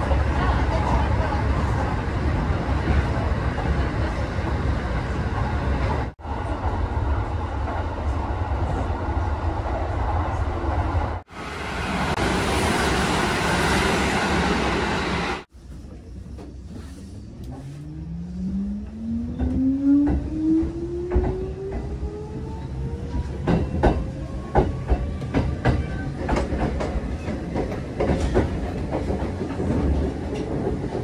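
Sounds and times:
train wheels rumbling on rail: 0:18.8 - 0:31.0.

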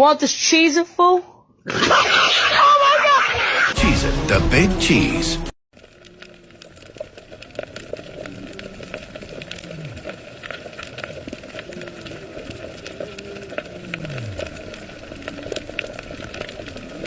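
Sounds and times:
dense crackle of underwater clicks: 0:05.7 - 0:17.0.

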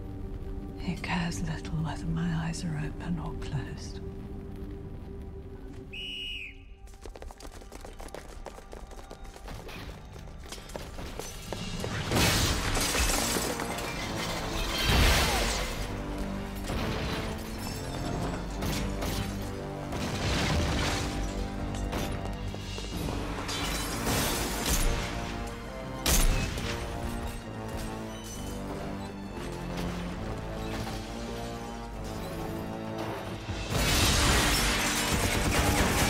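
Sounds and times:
dramatic film score music: 0:00.0 - 0:36.0
glass shattering: 0:11.1 - 0:16.0, 0:16.6 - 0:22.3, 0:23.3 - 0:28.7, 0:33.7 - 0:36.0.

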